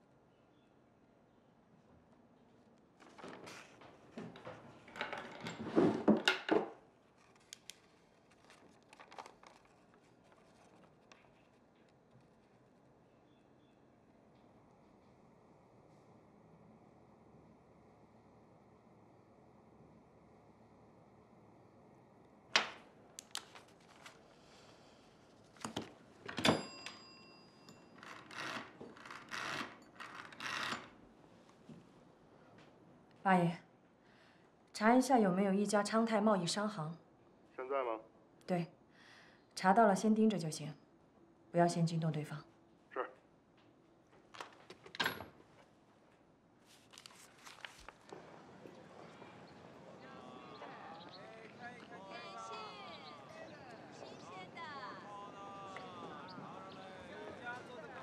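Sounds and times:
paper rustling: 3.0s - 4.4s, 7.1s - 12.6s, 23.2s - 26.0s, 46.6s - 48.5s
brief metallic telephone ring: 26.4s - 27.9s.

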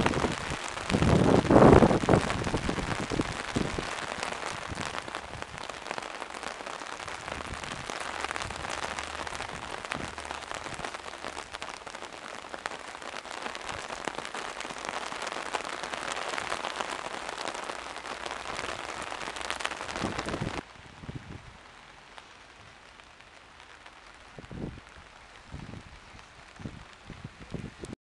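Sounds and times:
hailstones ticking on hard surfaces: 0.0s - 20.6s
rain hissing: 0.0s - 28.0s.

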